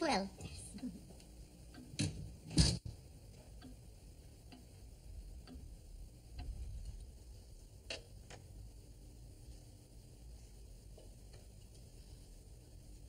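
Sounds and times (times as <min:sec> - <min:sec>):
clock ticking: 0:00.0 - 0:02.4, 0:03.0 - 0:09.1.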